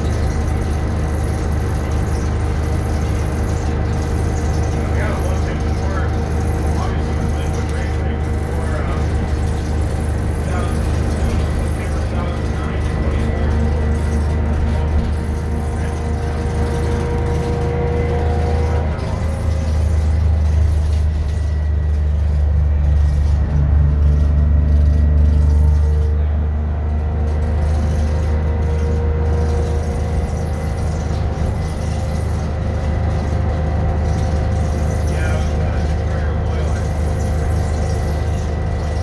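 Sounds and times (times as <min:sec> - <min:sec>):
bus diesel engine drone: 0:00.0 - 0:39.0.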